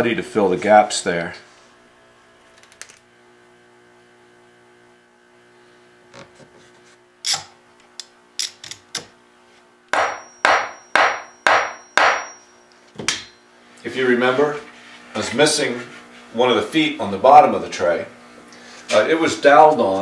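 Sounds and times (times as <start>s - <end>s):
hammer tapping on wood: 9.9s - 12.3s.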